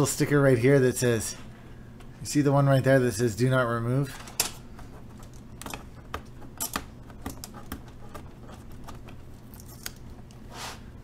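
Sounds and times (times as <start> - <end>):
soft scrape: 10.5 - 10.9.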